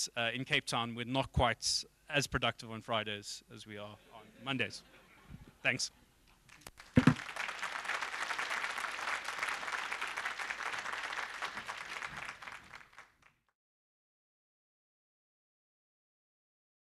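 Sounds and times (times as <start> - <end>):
audience applauding: 6.5 - 13.4.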